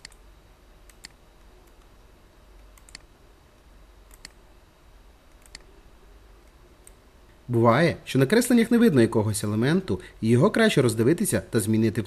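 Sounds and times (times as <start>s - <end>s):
computer mouse clicks: 0.0s - 0.2s, 0.9s - 1.9s, 2.6s - 3.1s, 4.1s - 4.4s, 5.3s - 5.7s
low steady hiss: 0.0s - 12.0s.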